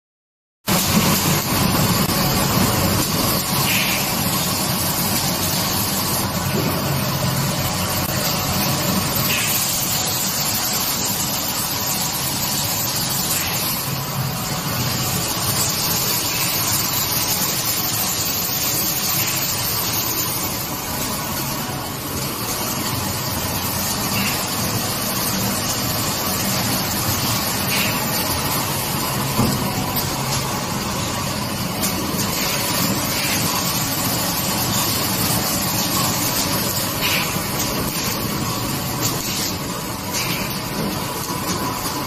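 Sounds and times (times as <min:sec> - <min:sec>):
machine hum and whir: 0:00.7 - 0:42.0
short machine hiss: 0:03.6 - 0:04.2.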